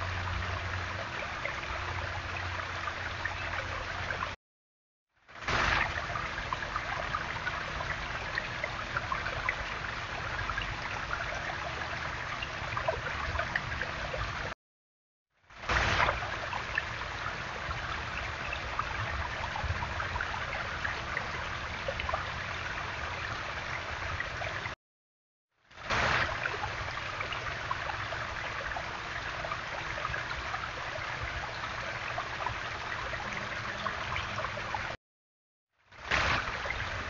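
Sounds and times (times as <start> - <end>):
water running over stones: 5.4 - 14.6, 15.6 - 24.8, 25.7 - 35.0, 36.0 - 37.0.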